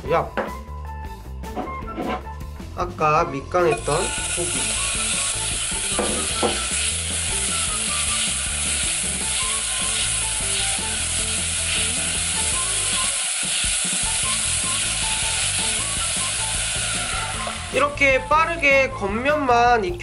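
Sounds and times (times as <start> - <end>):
meat sizzling in oil: 3.7 - 18.0.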